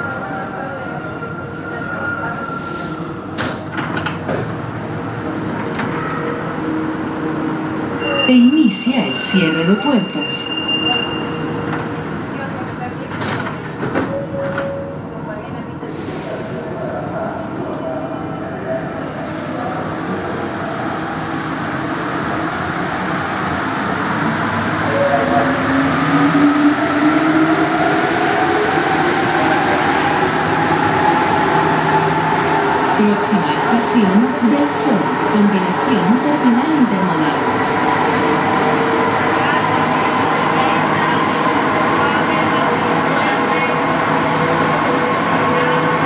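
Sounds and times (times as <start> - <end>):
train humming: 2.8 - 46.0
train doors clicking and knocking: 3.3 - 4.6, 13.0 - 14.8.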